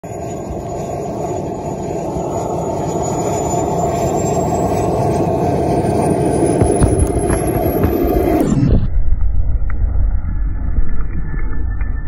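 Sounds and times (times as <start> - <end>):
jet turbine whine: 0.0 - 11.8
rushing jet exhaust: 0.1 - 8.9.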